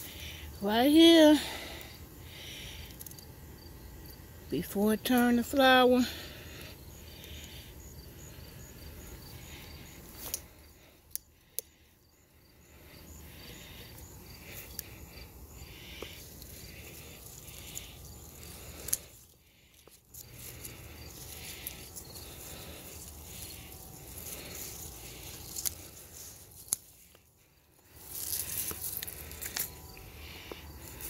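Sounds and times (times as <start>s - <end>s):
crickets chirping: 0.0s - 31.0s
scissors snipping stems: 10.1s - 11.8s, 15.9s - 27.2s
leaves rustling: 12.4s - 31.0s.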